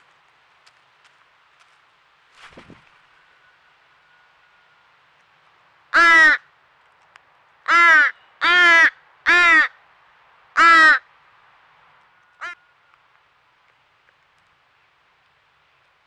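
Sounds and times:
crow fledgling cawing: 0:05.9 - 0:06.5, 0:07.6 - 0:09.8, 0:10.5 - 0:11.1, 0:12.4 - 0:12.6.

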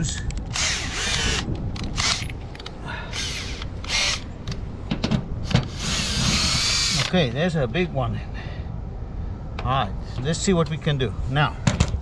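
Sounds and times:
cordless drill whining: 0:00.5 - 0:02.3, 0:03.1 - 0:04.3, 0:05.6 - 0:07.1.

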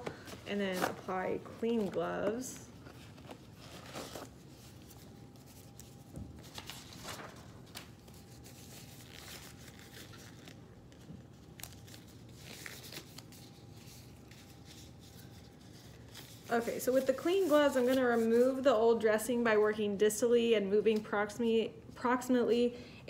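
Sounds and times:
packaging rustling: 0:00.0 - 0:17.1.

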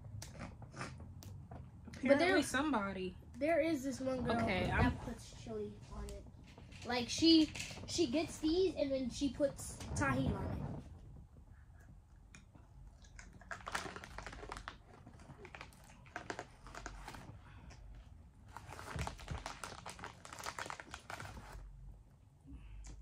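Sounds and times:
plastic wrapper crinkling: 0:13.0 - 0:17.4, 0:18.4 - 0:21.7.

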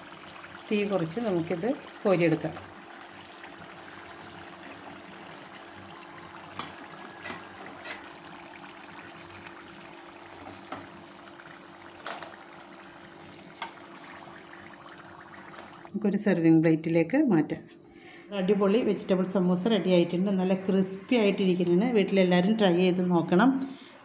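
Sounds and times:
food deep-frying in oil: 0:00.0 - 0:15.9.

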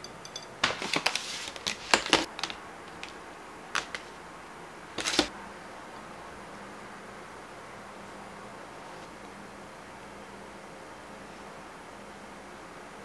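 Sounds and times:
plastic container crinkling clicks: 0:03.8 - 0:04.1.

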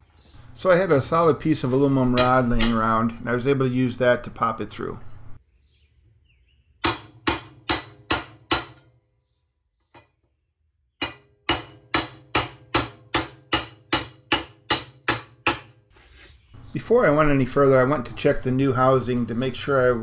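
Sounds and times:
hammer striking metal rod: 0:02.1 - 0:02.9, 0:06.8 - 0:08.9, 0:11.0 - 0:15.8.

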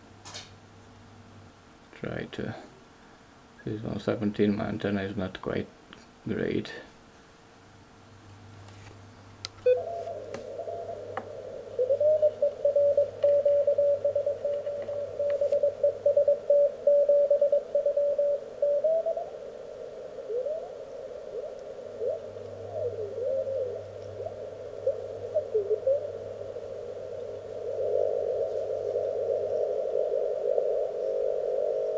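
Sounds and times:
morse code signal: 0:09.6 - 0:11.0, 0:12.2 - 0:18.8.

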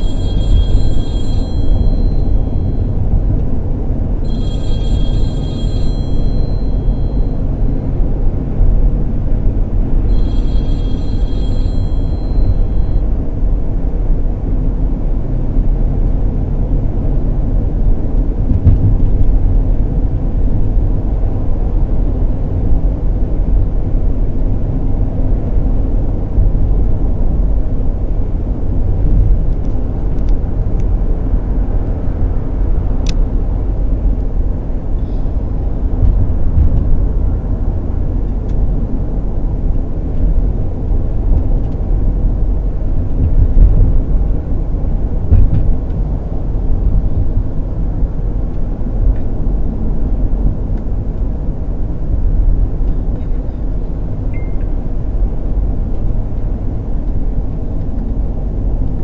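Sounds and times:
van engine and tyres rumble: 0:00.0 - 0:59.0.

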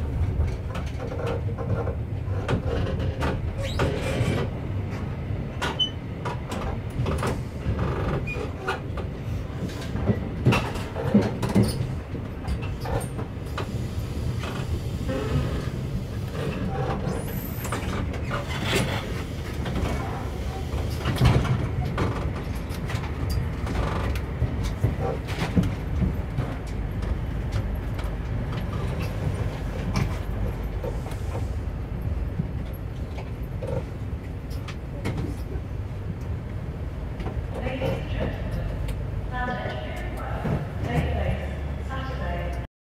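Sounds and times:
train running rumble: 0:00.0 - 0:42.7
wheels clicking over rail joints: 0:00.1 - 0:13.8.

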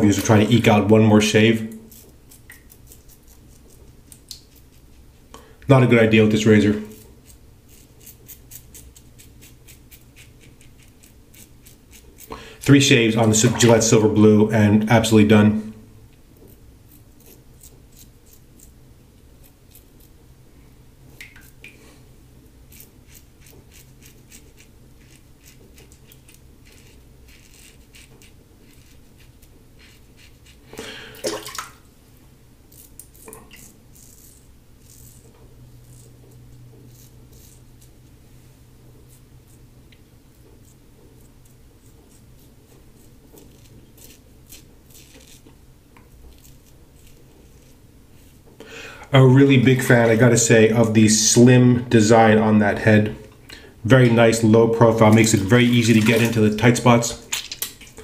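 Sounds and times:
razor scraping stubble: 0:00.0 - 0:14.0, 0:16.4 - 0:20.2, 0:22.6 - 0:30.8, 0:32.7 - 0:38.2, 0:40.3 - 0:48.5, 0:54.0 - 0:57.2.

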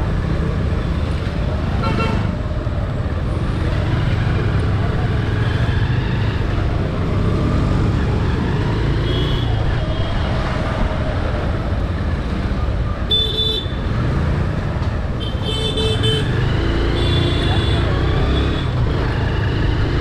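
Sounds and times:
traffic passing: 0:00.0 - 0:20.0
car horn beeps: 0:13.1 - 0:13.8.

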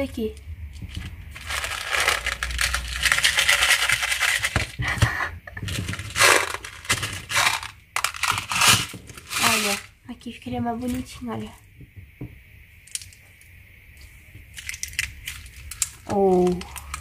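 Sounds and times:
plastic beads rattling in tub: 0:00.8 - 0:04.9, 0:05.5 - 0:10.0, 0:14.6 - 0:17.0.

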